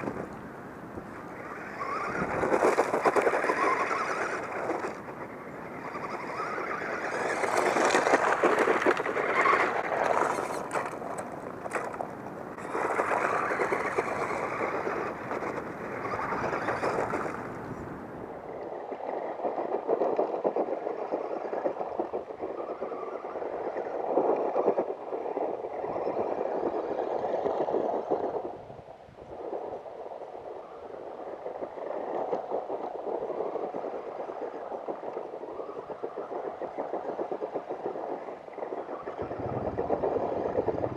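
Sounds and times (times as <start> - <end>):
toy car motor whirring: 1.4 - 5.0, 5.8 - 12.0.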